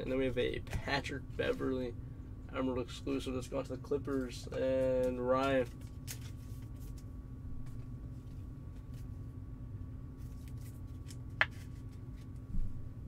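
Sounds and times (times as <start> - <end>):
steady low hum: 0.0 - 13.0
card rustling and clicking: 4.9 - 9.1, 10.2 - 12.5.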